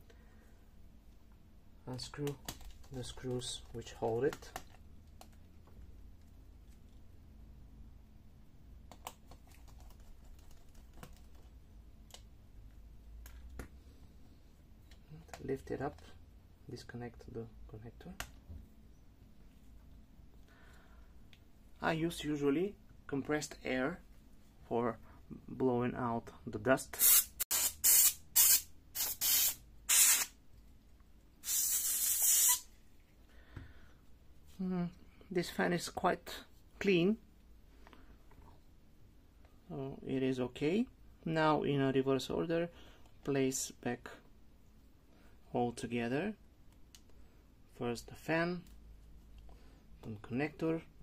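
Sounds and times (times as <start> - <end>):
compressed air hissing blasts: 27.0 - 30.4, 31.4 - 32.7.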